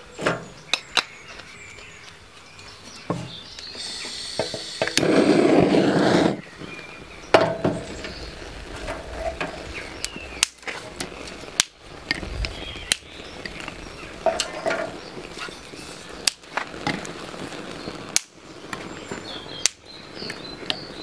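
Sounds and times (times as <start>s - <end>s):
torch flame hissing: 3.3s - 21.0s
blowtorch igniter clicks: 3.5s - 6.4s, 7.3s - 20.9s.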